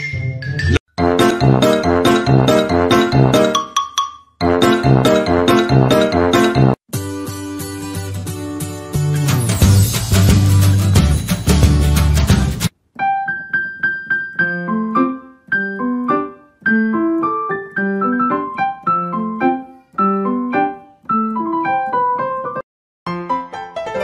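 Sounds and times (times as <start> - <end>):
light piano melody: 13.0 - 24.0.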